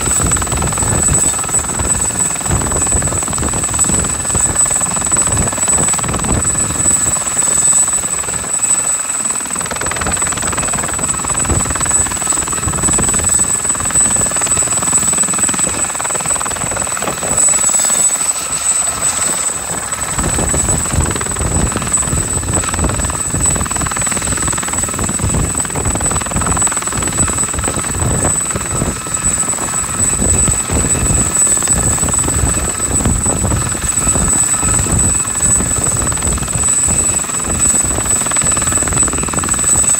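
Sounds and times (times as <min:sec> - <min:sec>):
helicopter rotor beat: 0:00.0 - 0:39.9
helicopter turbine whine: 0:00.0 - 0:39.9.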